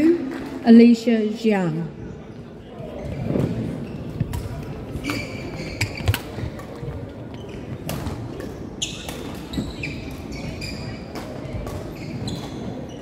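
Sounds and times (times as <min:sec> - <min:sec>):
echoing hall background noise: 0:00.0 - 0:13.0
shoes squeaking on wooden floor: 0:03.0 - 0:07.9, 0:08.8 - 0:11.1, 0:11.7 - 0:13.0.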